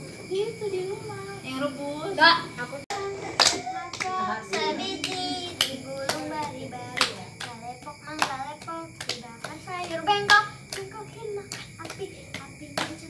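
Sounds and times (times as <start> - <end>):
children singing a chant: 2.2 - 13.0
hands slapping and clapping: 2.9 - 13.0.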